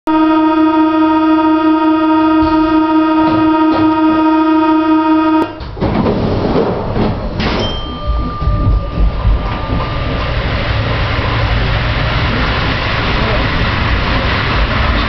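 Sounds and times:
door-closing warning buzzer: 0:00.1 - 0:05.6
train rumbling: 0:00.2 - 0:15.0.

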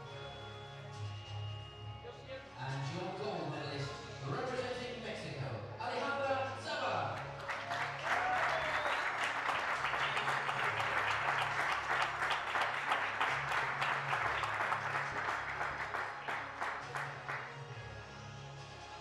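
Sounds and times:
audience applauding: 0:07.2 - 0:17.8.

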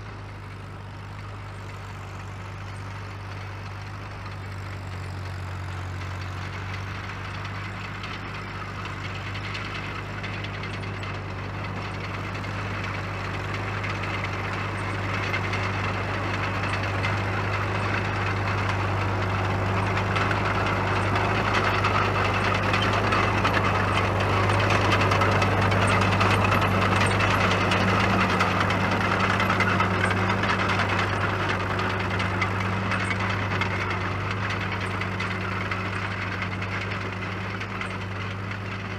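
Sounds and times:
diesel engine running: 0:00.0 - 0:38.9.

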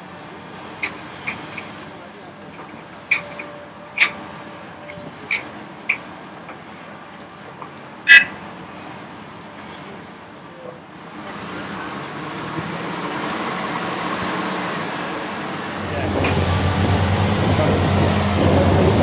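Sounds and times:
excavator diesel engine running: 0:11.1 - 0:19.0.

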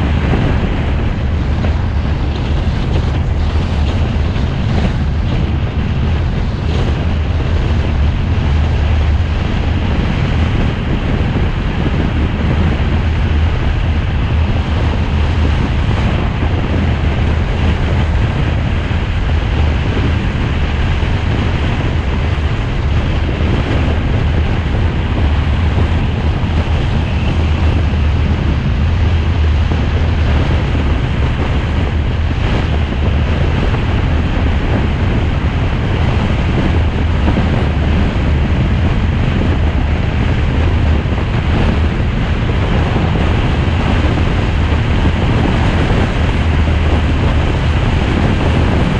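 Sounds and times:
car road noise rumble: 0:00.0 - 0:48.9.

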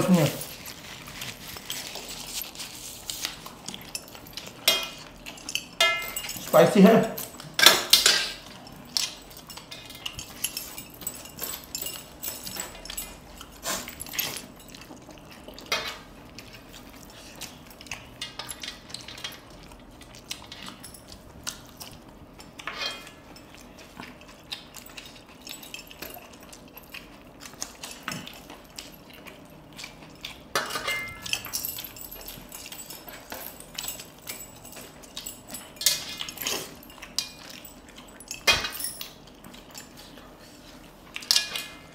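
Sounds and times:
fingers clinking on steel plates: 0:00.0 - 0:16.8, 0:29.9 - 0:39.8.

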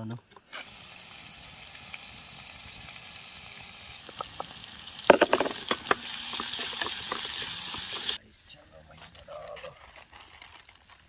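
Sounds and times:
gas stove burner hissing: 0:00.5 - 0:08.2.

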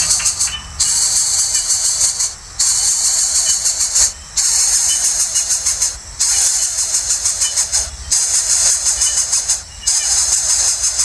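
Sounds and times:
nestlings begging hiss: 0:00.0 - 0:11.0.

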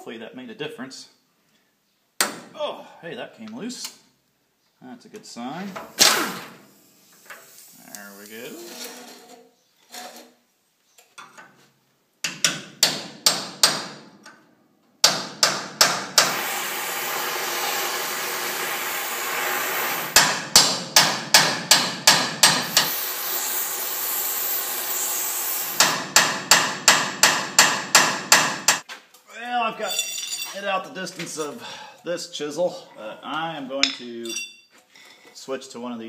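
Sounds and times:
gas torch hissing: 0:16.2 - 0:20.2, 0:22.6 - 0:25.8.

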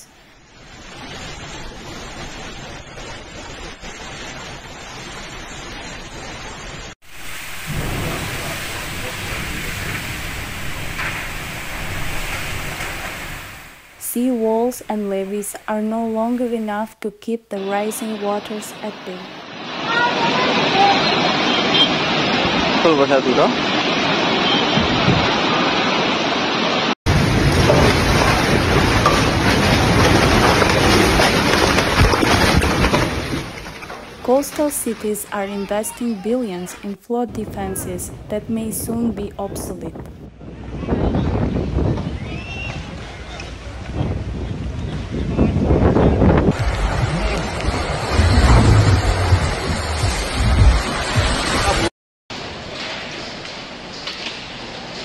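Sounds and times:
wind-driven rain rushing: 0:00.0 - 0:16.9, 0:17.6 - 0:55.0
deep low rumble: 0:40.0 - 0:51.9.

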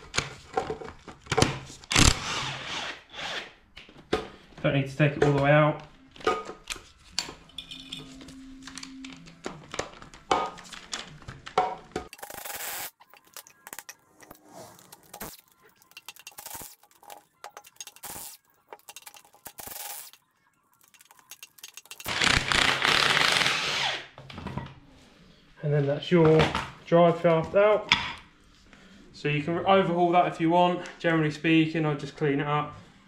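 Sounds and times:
metal tools clinking and scraping: 0:07.1 - 0:09.1, 0:12.1 - 0:20.2, 0:20.8 - 0:22.1.

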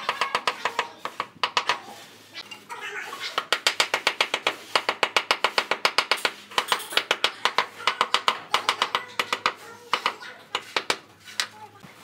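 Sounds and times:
hammer handle knocking on ceramic tiles: 0:00.0 - 0:01.8, 0:03.4 - 0:11.0.

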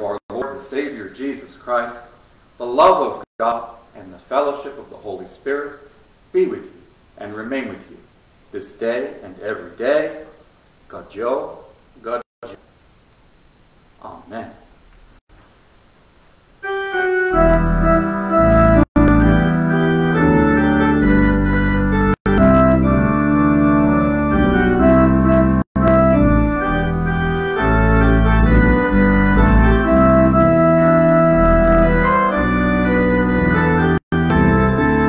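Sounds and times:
sustained organ chords: 0:16.6 - 0:35.0.

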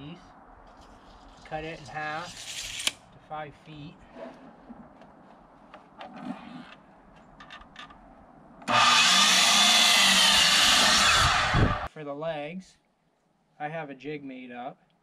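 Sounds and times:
miter saw cutting wood: 0:08.7 - 0:11.9.

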